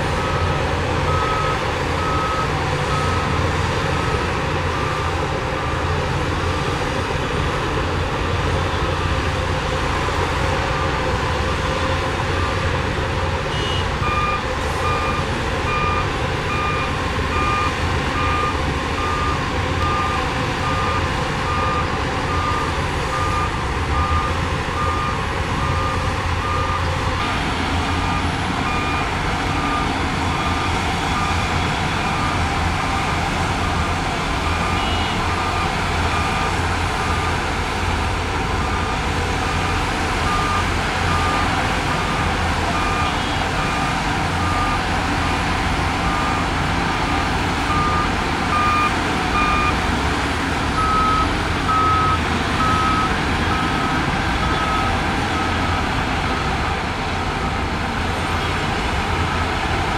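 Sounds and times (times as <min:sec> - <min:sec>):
diesel engine running: 0:00.0 - 0:59.9
reversing alarm beeping: 0:00.1 - 0:03.4, 0:13.5 - 0:37.4, 0:38.6 - 0:45.1, 0:46.0 - 0:49.8, 0:50.8 - 0:56.6.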